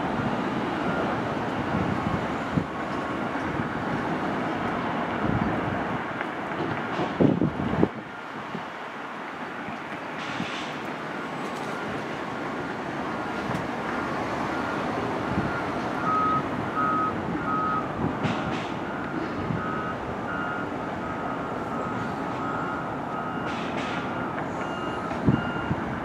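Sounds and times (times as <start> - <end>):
site and street noise: 0.0 - 26.0
backup alarms beeping: 14.5 - 25.8.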